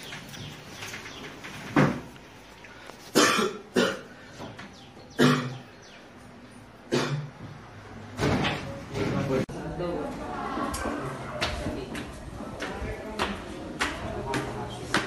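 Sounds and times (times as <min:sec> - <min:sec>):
man coughing: 0:03.1 - 0:04.1, 0:05.2 - 0:05.6.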